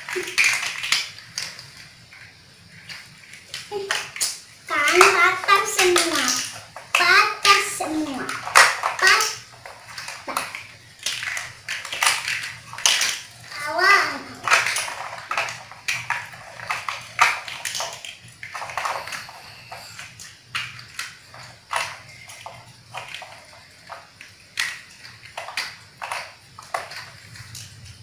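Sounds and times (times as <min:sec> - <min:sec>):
plastic toy blocks clattering: 0:00.0 - 0:28.0
young children talking: 0:04.7 - 0:08.4, 0:09.0 - 0:09.4, 0:13.5 - 0:14.4.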